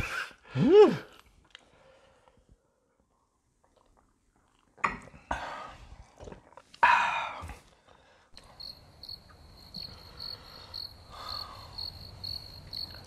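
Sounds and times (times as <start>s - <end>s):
cricket chirping: 8.4s - 13.0s.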